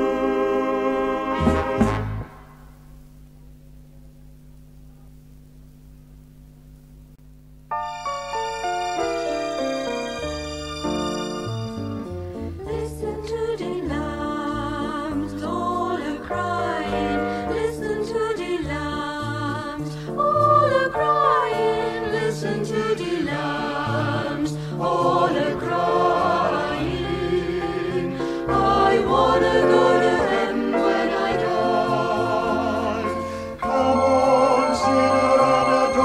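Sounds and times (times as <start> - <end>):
vocal group singing in harmony: 0.0 - 2.5, 12.6 - 36.0
low sustained bass notes: 0.0 - 7.7.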